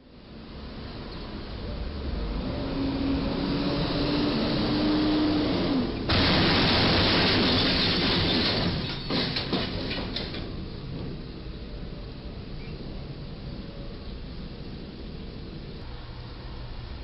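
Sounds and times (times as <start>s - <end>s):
crushing metal scraping: 6.1s - 10.5s
metal clanks and rattles: 6.8s - 11.2s.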